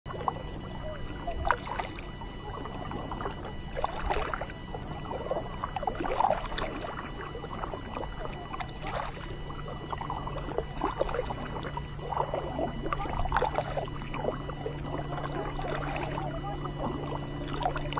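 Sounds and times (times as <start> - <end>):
paddle splashing in water: 1.4 - 2.0, 2.6 - 16.2.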